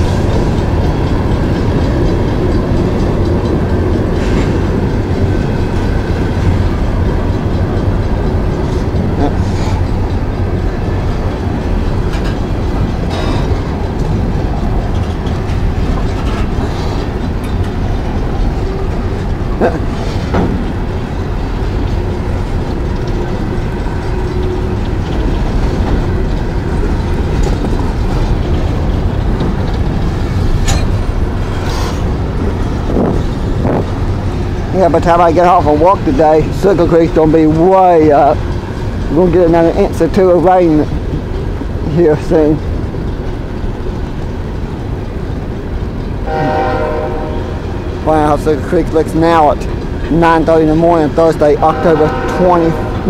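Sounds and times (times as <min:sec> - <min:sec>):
train wheels rumbling on rail: 0:00.0 - 0:53.0
sharp metal clanks: 0:30.6 - 0:32.0.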